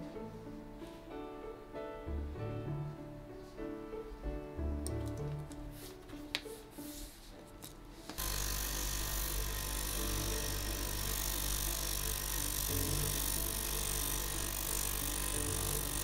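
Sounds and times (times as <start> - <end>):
edge-finishing machine hum and hiss: 6.8 - 16.0.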